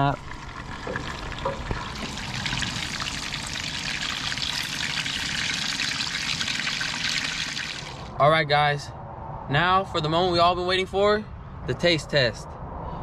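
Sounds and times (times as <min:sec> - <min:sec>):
butter sizzling in a frying pan: 0:00.0 - 0:08.1.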